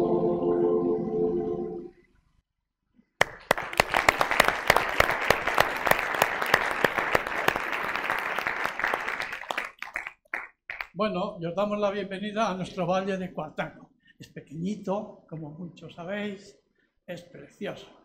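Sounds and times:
choir singing: 0.0s - 2.0s
audience applause: 3.2s - 10.9s.

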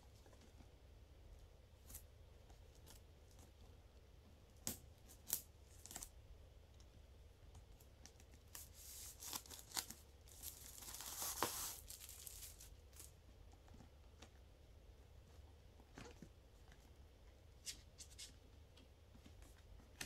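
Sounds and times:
shrink wrap crackling: 8.1s - 13.2s
shrink wrap tearing rustle: 8.4s - 13.2s.

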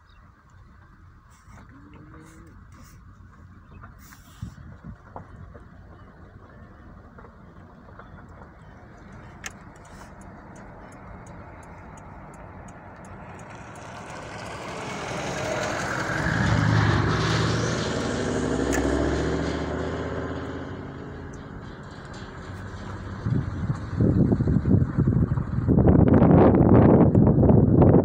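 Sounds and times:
vehicle driving past: 9.9s - 26.6s.

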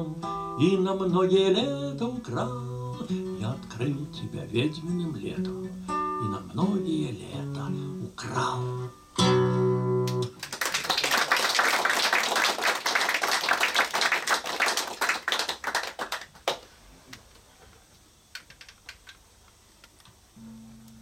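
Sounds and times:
audience applauding: 10.1s - 16.7s.

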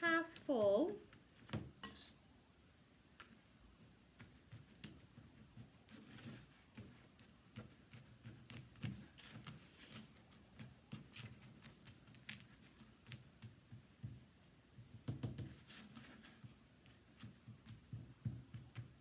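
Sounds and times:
spoon tapping and scraping: 1.7s - 2.2s.

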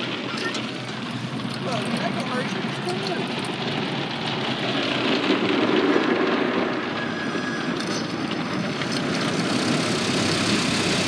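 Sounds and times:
car wash water spray rushing: 0.0s - 7.6s, 8.4s - 11.0s.

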